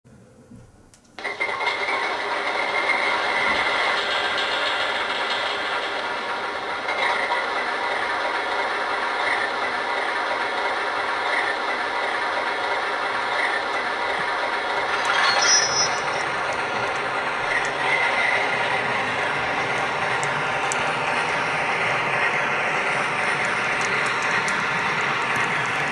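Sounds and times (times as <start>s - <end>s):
model train rattling hum: 1.2s - 25.9s
short high squeak: 14.9s - 16.9s.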